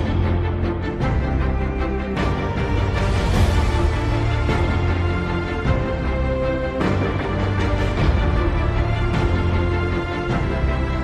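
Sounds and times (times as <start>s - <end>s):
dramatic orchestral music: 0.0s - 11.0s.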